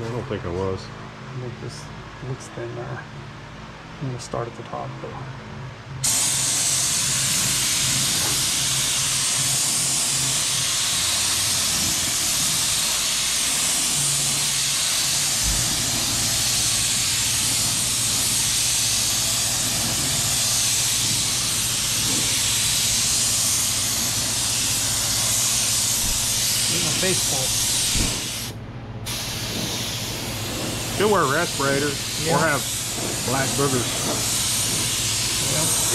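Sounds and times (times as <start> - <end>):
paint spray gun hissing: 6.0 - 28.5, 29.1 - 35.9.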